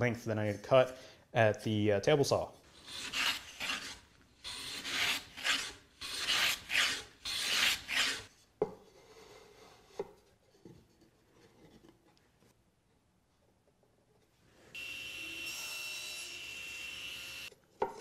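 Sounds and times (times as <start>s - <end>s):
hand plane shaving wood: 2.7s - 8.3s.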